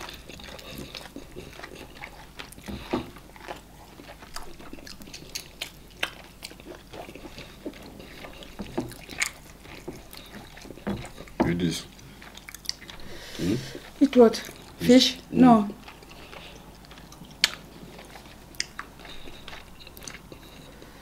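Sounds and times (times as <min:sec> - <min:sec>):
fingers squishing slimy soup: 0:00.0 - 0:13.1
wet chewing and lip-smacking: 0:00.0 - 0:21.0.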